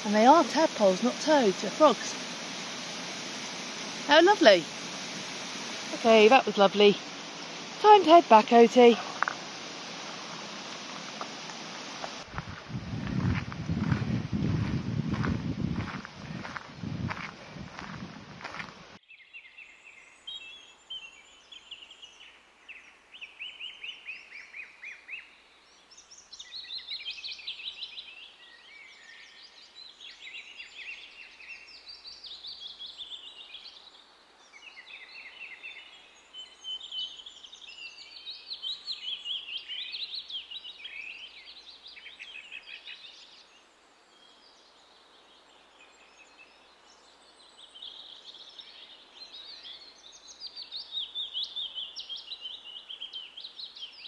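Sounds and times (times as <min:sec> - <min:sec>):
songbirds chirping and trilling: 0:13.0 - 0:54.0.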